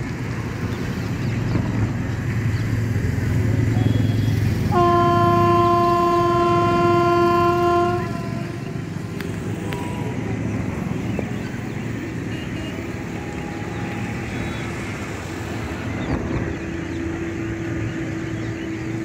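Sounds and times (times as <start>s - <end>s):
train horn long blast: 3.8s - 9.0s.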